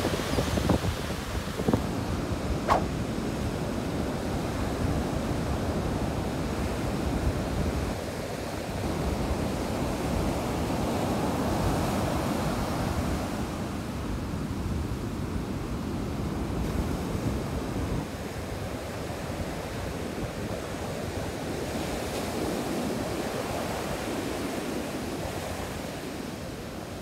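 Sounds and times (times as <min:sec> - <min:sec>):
wind rumbling on microphone: 0:00.0 - 0:13.4.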